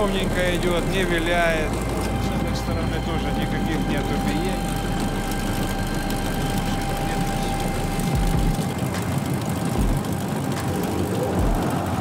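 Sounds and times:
grain cleaning machine running: 0.0s - 12.0s
thin steady whine: 0.0s - 12.0s
low thuds: 9.7s - 10.7s.

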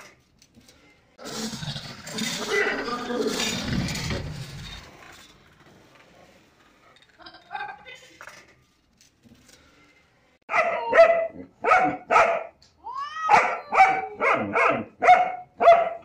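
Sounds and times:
dog barking: 10.5s - 12.6s, 13.3s - 16.0s.

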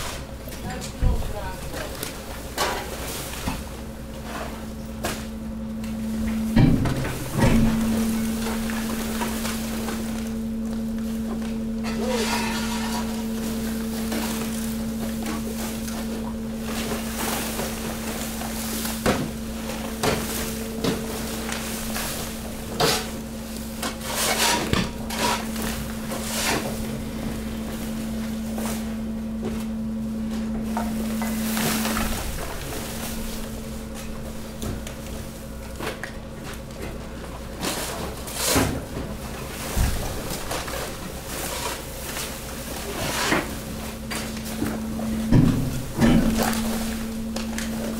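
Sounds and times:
hydraulic pump motor hum: 0.0s - 37.6s, 39.0s - 47.9s
rubbish knocking and thudding: 6.3s - 10.8s, 44.1s - 47.9s.

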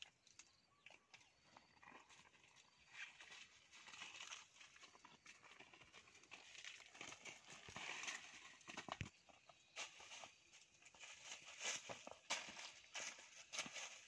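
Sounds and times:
dry leaves rustling: 9.8s - 14.0s.

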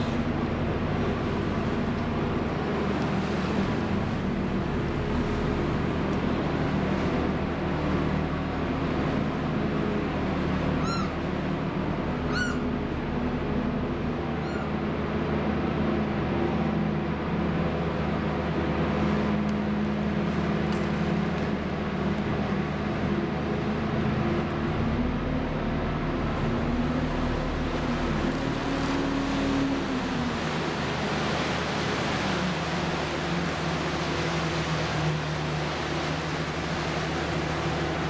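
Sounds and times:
boat engine drone: 0.0s - 38.0s
short high cries: 10.8s - 11.2s, 12.2s - 12.7s.

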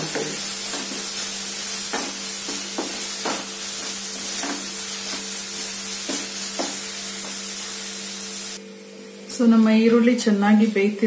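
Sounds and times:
onions sizzling in oil: 0.0s - 8.6s
wooden spatula scraping a pan: 0.1s - 7.5s.

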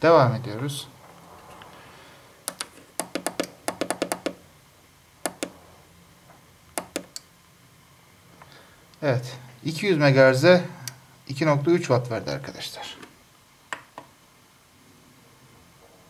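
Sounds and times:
push-button switches clicking: 2.5s - 4.4s, 5.2s - 5.6s, 6.8s - 7.3s.

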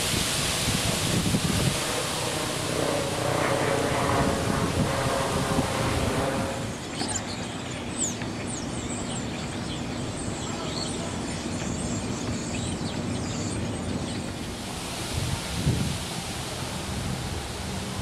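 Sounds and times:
steady outdoor hiss: 0.0s - 18.0s
birds chirping: 0.8s - 14.6s
vehicle passing: 1.6s - 6.8s.

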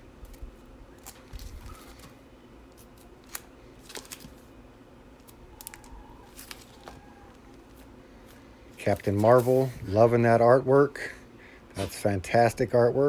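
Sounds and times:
low room hum: 0.0s - 13.0s
plastic bags crinkling: 5.6s - 9.4s.

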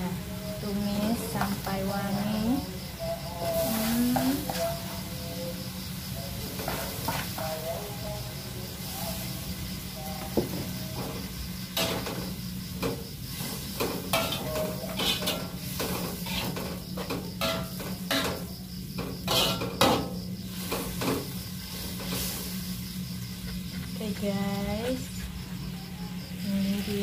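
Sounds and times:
food sizzling: 0.0s - 27.0s
metal spatula scraping a wok: 11.0s - 22.8s.

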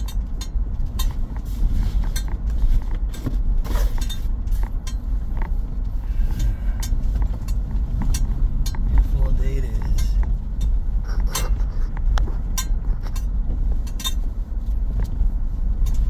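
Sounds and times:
tyres rumbling on dirt road: 0.0s - 16.0s.

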